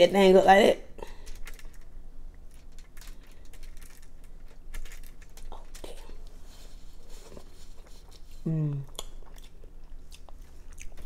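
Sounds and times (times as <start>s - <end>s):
aluminium foil crinkling: 1.1s - 8.4s.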